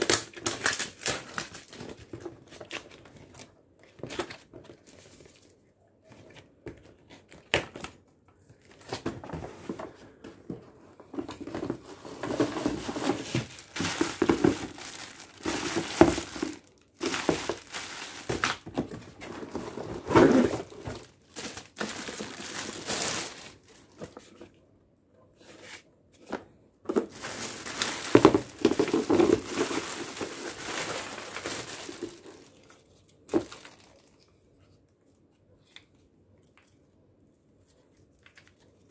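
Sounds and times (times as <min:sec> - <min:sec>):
cardboard rustling and knocking: 0:08.9 - 0:22.8, 0:26.9 - 0:32.3
plastic wrapping crinkling: 0:11.1 - 0:24.2, 0:26.9 - 0:34.3.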